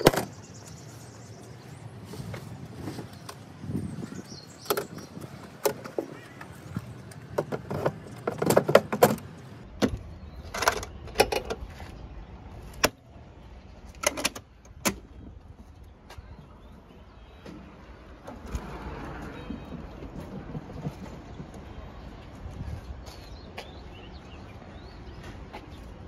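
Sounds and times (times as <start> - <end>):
rattling knocks: 7.3 - 11.6
metal latches clicking: 14.0 - 15.0.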